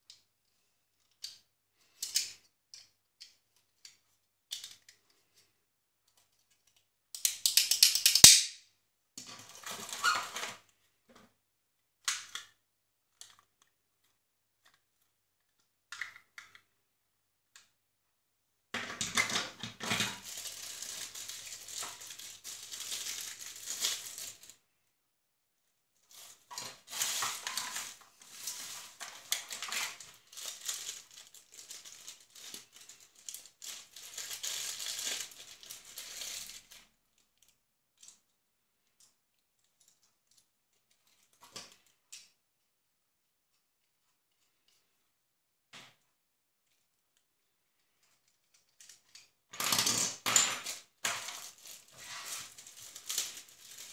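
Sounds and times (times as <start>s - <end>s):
plastic parts clicking: 1.0s - 5.2s, 6.1s - 8.5s
plastic bags crinkling: 20.0s - 24.6s, 26.0s - 36.9s, 50.7s - 53.9s.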